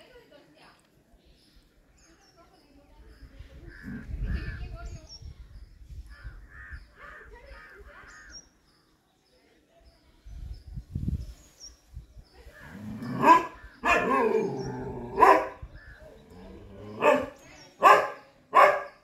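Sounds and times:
crows cawing: 6.2 - 8.3
dog barking loudly: 13.2 - 15.6, 16.9 - 19.0.

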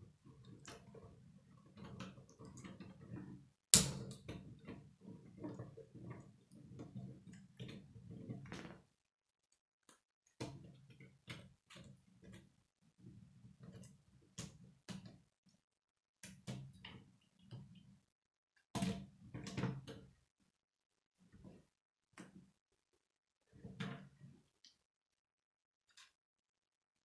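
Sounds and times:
loud plastic snap: 3.8 - 4.2.

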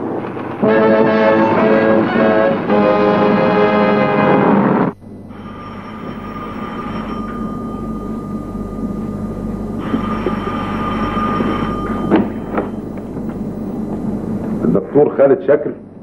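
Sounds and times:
brass-led orchestral music: 0.6 - 4.9.

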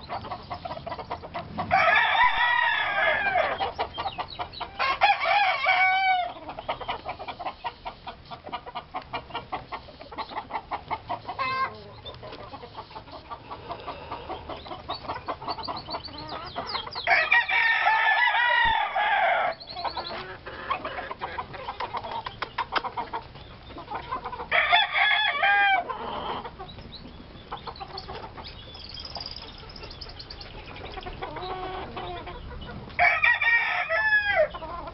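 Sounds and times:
roosters crowing: 0.0 - 26.7, 30.9 - 34.9
chickens clucking: 0.0 - 34.9.

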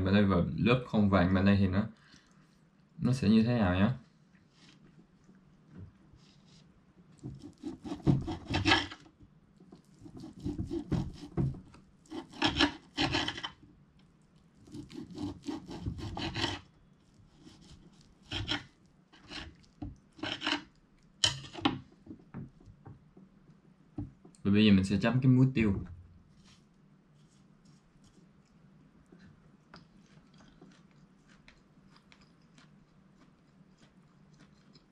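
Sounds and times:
knife sawing through steak: 7.4 - 9.0, 10.0 - 11.4, 12.1 - 13.5, 14.6 - 16.7, 17.4 - 19.6, 20.2 - 20.7.

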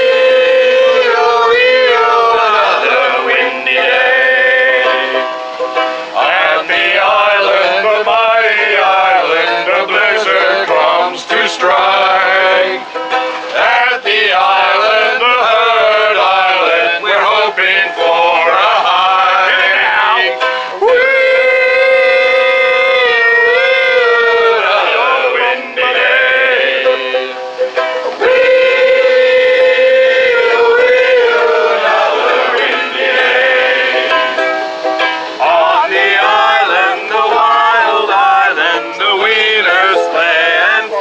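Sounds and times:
people singing: 0.0 - 5.3, 6.0 - 27.4, 28.0 - 41.0
ukulele: 0.0 - 41.0.

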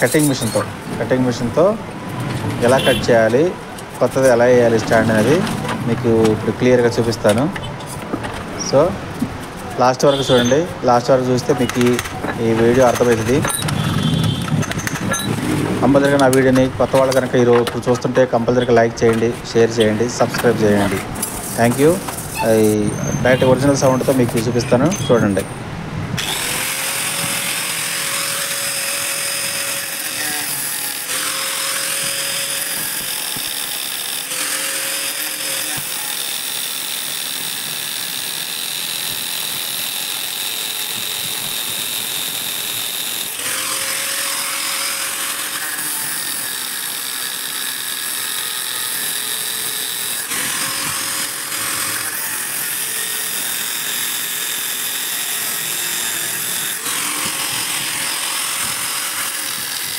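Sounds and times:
angle grinder cutting steel: 0.0 - 25.5, 26.2 - 59.9.

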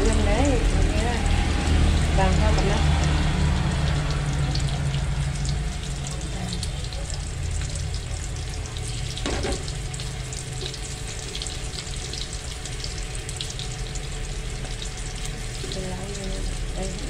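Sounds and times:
meat sizzling in hot oil: 0.0 - 17.0.

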